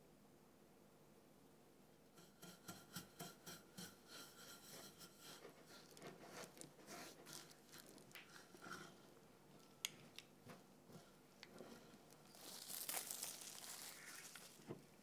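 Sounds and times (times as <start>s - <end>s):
metal spoon scraping glass dish: 2.2s - 9.1s.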